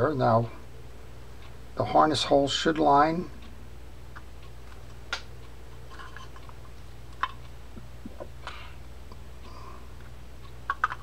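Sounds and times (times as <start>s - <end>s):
metal reel parts clicking: 5.9s - 6.6s.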